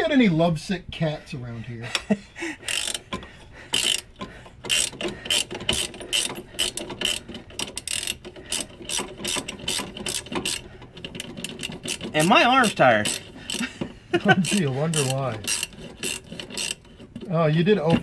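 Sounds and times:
ratchet wrench clicking: 0:02.6 - 0:13.7, 0:14.3 - 0:17.3.

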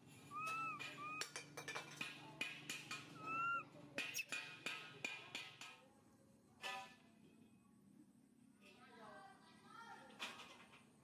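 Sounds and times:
baby monkey coo calls: 0:00.3 - 0:01.4, 0:03.1 - 0:04.3.

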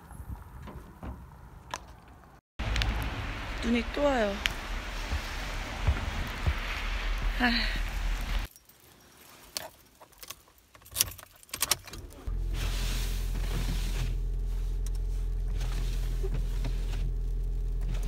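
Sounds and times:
car engine idling: 0:12.1 - 0:18.0.

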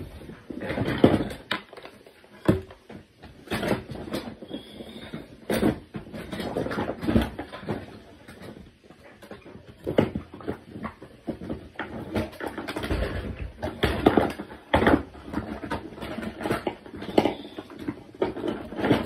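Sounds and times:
rustling: 0:00.0 - 0:19.0
toys knocking and clattering: 0:00.0 - 0:19.0.

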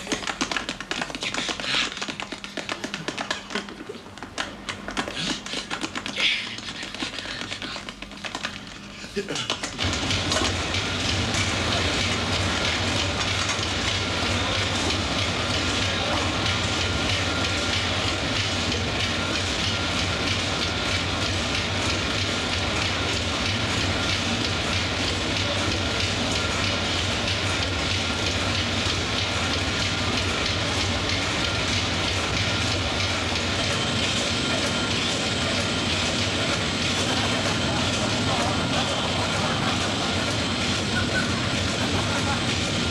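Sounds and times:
fast machinery clatter: 0:00.0 - 0:42.9
engine-room machinery hum: 0:09.6 - 0:42.9.

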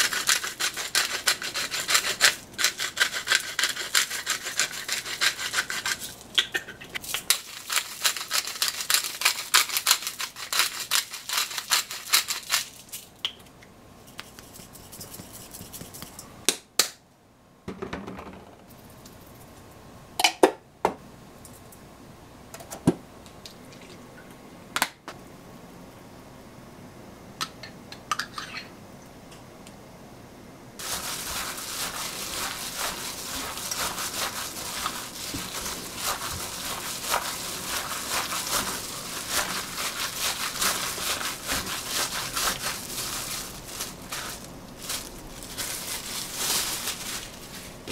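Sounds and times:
pepper mill grinding: 0:00.0 - 0:13.1, 0:30.8 - 0:47.7.

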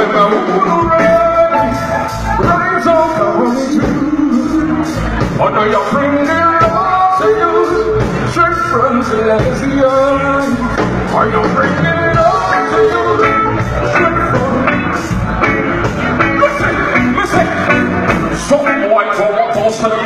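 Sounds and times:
live band music: 0:00.0 - 0:20.0
person singing: 0:00.0 - 0:20.0.

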